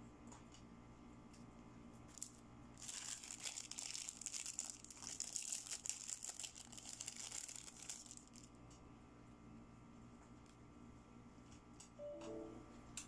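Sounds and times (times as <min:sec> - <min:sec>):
plastic packaging crinkling: 0:02.1 - 0:08.6.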